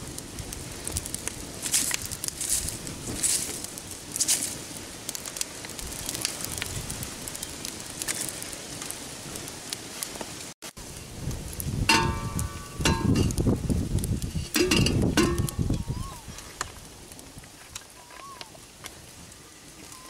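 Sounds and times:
fire crackling and popping: 0.0s - 20.0s
metal kettle clanking: 14.5s - 15.5s.

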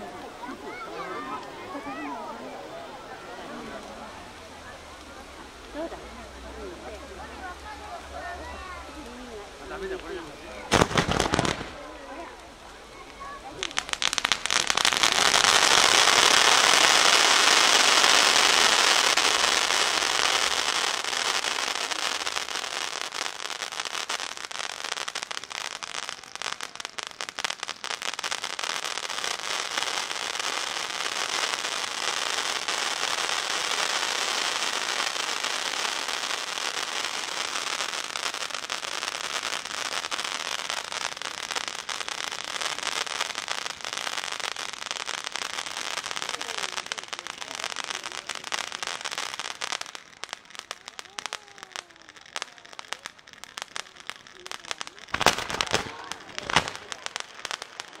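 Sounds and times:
spark fountains hissing and crackling: 0.0s - 58.0s.

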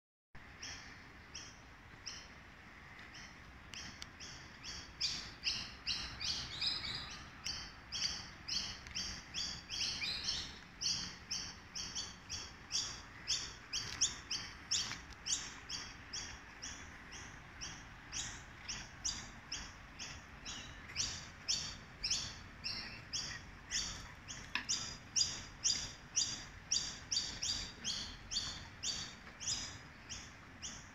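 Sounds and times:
bird chirping: 3.0s - 30.9s.

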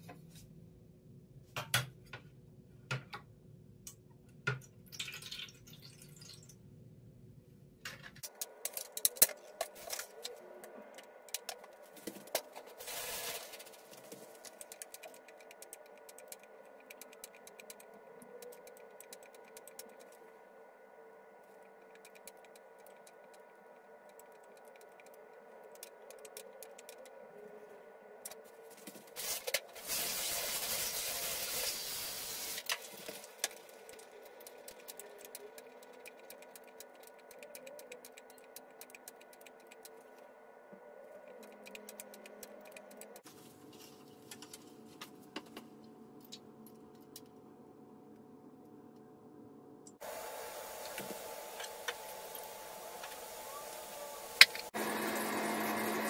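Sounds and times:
steady hum: 33.3s - 56.0s.

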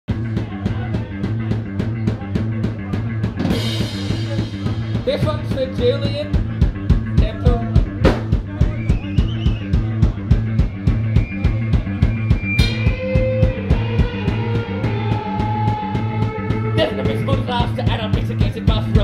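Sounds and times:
drum kit beat: 0.1s - 19.0s
electric bass: 0.1s - 19.0s
electric guitar sustained notes: 12.4s - 17.8s.

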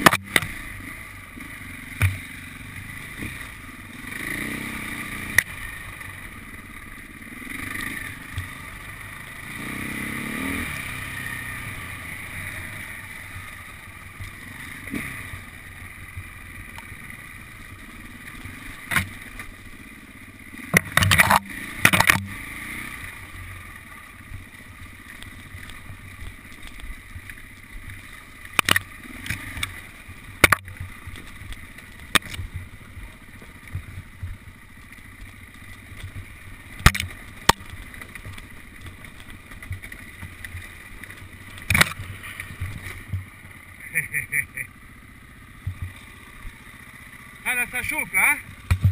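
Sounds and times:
motorcycle engine revving: 0.0s - 48.9s
sharp knocks and clatter: 36.8s - 40.4s, 48.6s - 48.9s.

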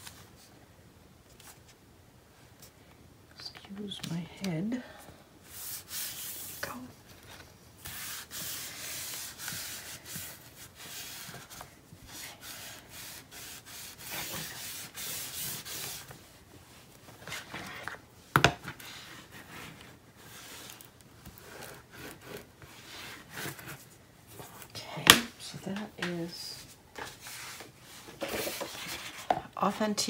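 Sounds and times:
rubbing strokes on paper: 5.4s - 6.8s, 7.8s - 17.7s.

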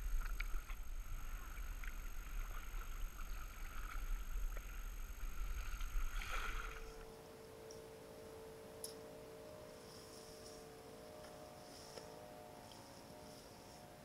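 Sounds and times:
paddle splashing water: 0.0s - 7.1s
steady low rumble: 0.0s - 14.0s.

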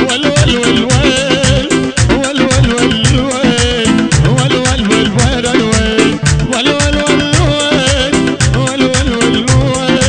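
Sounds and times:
deep bass: 0.0s - 10.0s
fast drum beat: 0.0s - 10.0s
wavering melody line: 3.1s - 6.3s.

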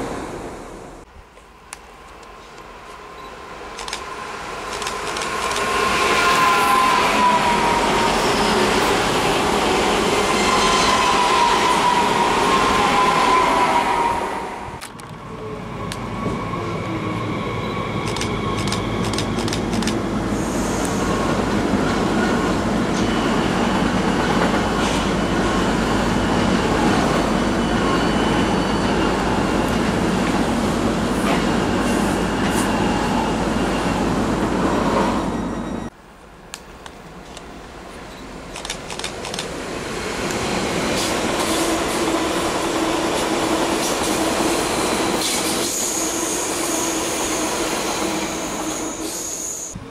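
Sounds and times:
electric train passing: 0.0s - 36.5s, 37.1s - 49.9s
high-speed train passing: 0.0s - 49.9s
rail clicks: 1.4s - 6.9s, 18.0s - 20.1s, 36.5s - 39.6s.

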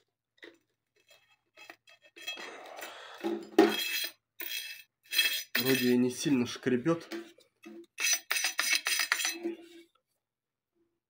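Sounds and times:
wire wheel metallic scrapes: 1.0s - 2.8s, 3.7s - 6.2s, 8.0s - 9.9s.

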